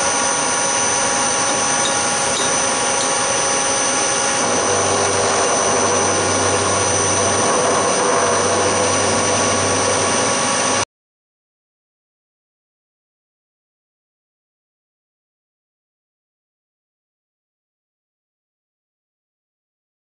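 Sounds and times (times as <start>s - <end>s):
low hum: 0.0s - 10.8s
milling machine whine: 0.0s - 10.8s.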